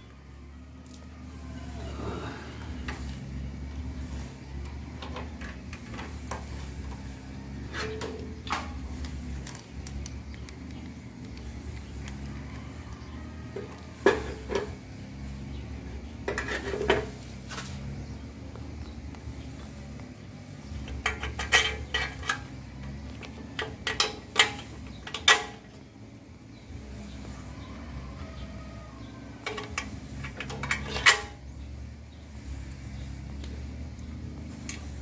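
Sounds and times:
metal clanks: 7.6s - 9.0s, 20.7s - 25.8s, 29.4s - 31.5s.

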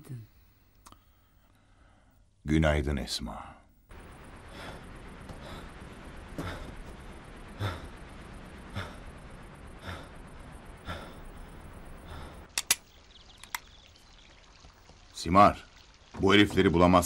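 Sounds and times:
man breathing heavily: 4.3s - 12.5s
sharp clicks: 12.4s - 13.7s.

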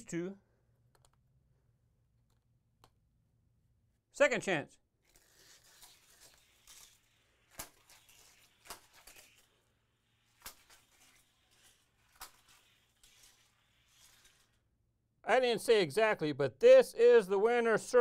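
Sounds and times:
toy car rolling: 5.0s - 14.6s
toy car clicking on plastic track: 5.1s - 9.5s, 10.2s - 14.6s.

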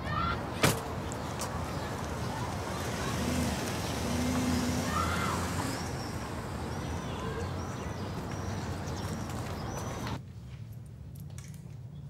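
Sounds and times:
car engine and tyres pulling away: 0.6s - 10.2s.

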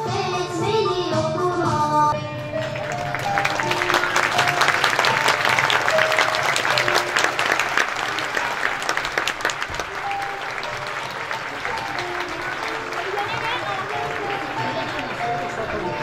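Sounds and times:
light instrumental tune: 0.0s - 16.0s
crowd applauding: 2.4s - 16.0s.

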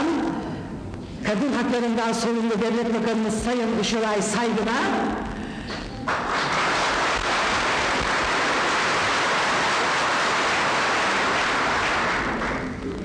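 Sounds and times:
audience applauding: 6.0s - 12.9s.

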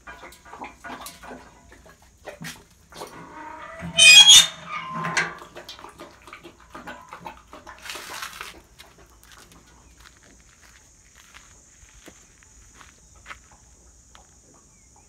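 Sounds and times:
metal gate squealing: 3.2s - 5.4s.

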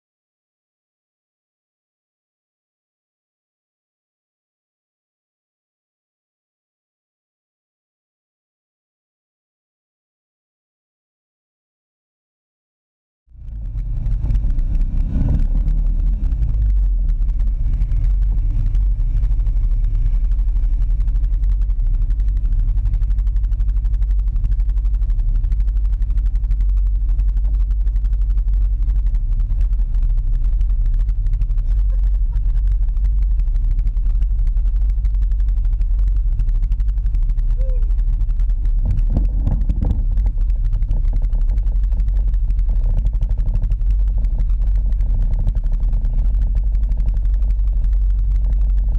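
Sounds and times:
atv engine idling: 13.4s - 48.9s.

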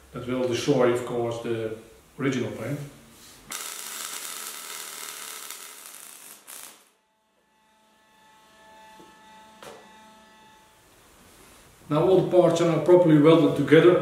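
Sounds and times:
welding arc crackling and hissing: 3.5s - 7.0s.

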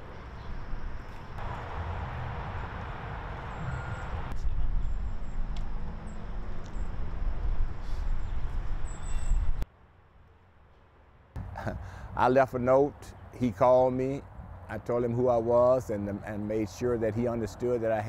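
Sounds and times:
steady low street rumble: 0.0s - 18.0s
faint bird chirps: 7.8s - 9.6s.

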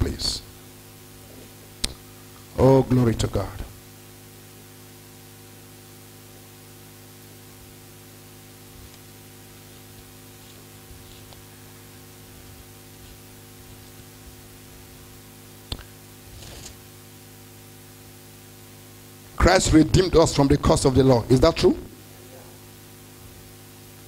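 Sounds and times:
constant hiss: 0.0s - 24.0s
electrical mains hum: 0.0s - 24.0s
faint soft rustles: 9.6s - 11.5s.

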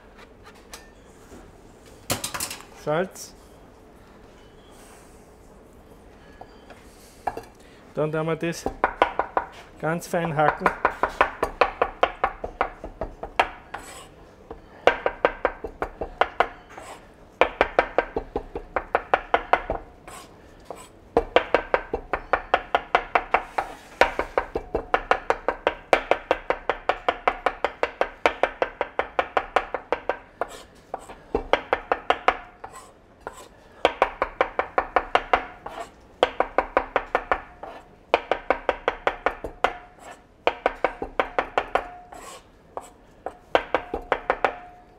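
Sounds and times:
knife chopping on plastic board: 20.7s - 32.5s, 33.3s - 39.9s, 40.5s - 44.6s.

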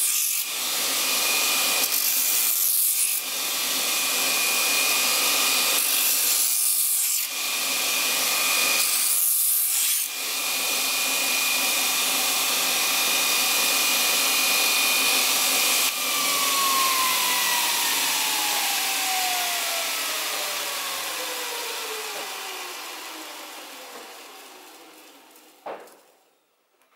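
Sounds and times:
bench grinder whine: 0.0s - 25.6s
grinder spinning down: 7.2s - 25.6s.

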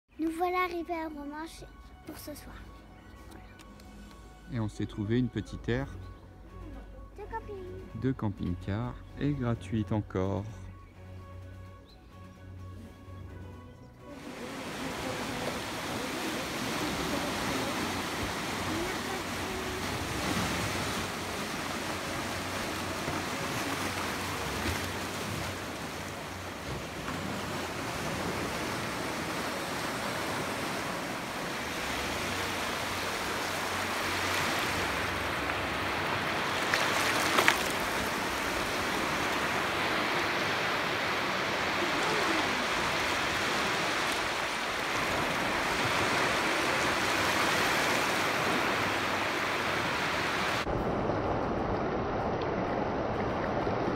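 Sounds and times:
sea waves washing over stone: 14.2s - 53.9s.

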